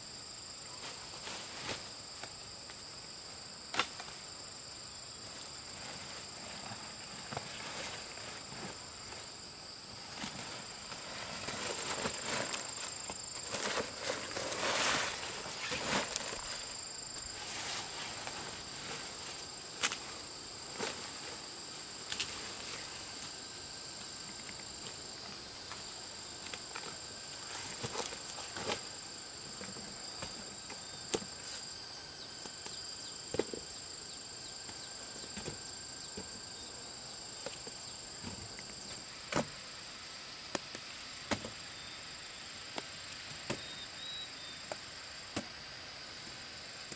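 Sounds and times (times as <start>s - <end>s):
insects trilling: 0.0s - 46.9s
rustling: 5.3s - 23.4s.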